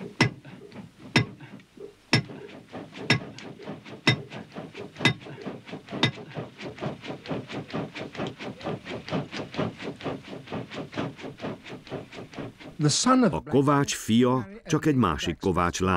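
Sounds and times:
hammer striking iron on anvil: 0.2s - 0.4s, 1.2s - 1.4s, 2.1s - 2.4s.

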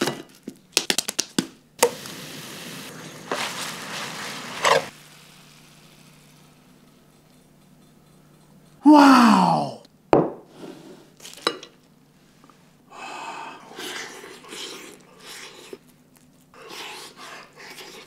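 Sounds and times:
man exclaiming loudly: 8.8s - 9.8s
plate knocking on wooden table: 10.2s - 10.4s.

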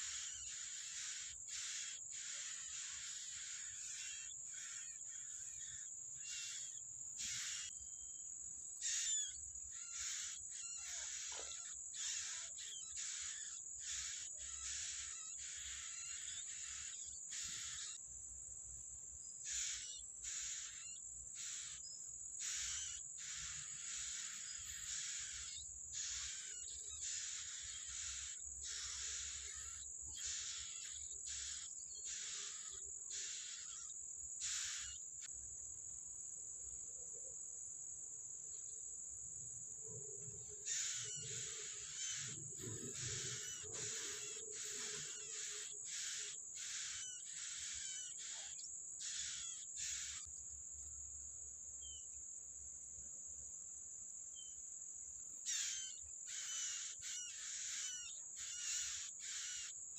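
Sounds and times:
nestlings begging calls: 0.0s - 8.2s, 8.8s - 18.0s, 19.3s - 35.1s, 40.3s - 50.3s, 55.4s - 59.8s
high-pitched insect drone: 0.0s - 35.4s, 38.5s - 51.0s, 55.2s - 59.9s.

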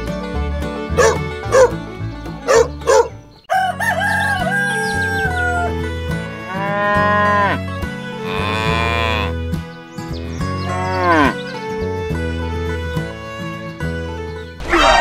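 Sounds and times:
background music: 0.0s - 15.0s
cow mooing: 6.4s - 9.4s, 10.6s - 11.4s.

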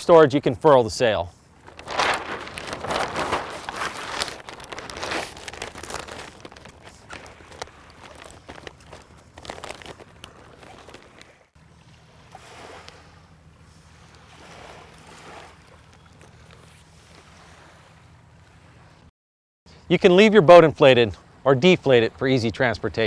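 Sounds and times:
sailcloth rustling: 1.5s - 11.5s.

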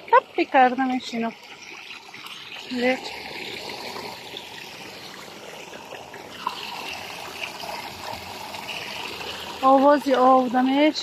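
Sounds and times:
water splashing over rocks: 0.0s - 11.0s.

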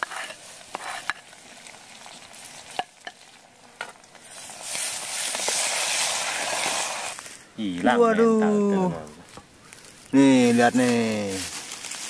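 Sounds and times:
meat frying in oil: 0.0s - 7.2s
utensil scraping pot: 0.0s - 7.2s.

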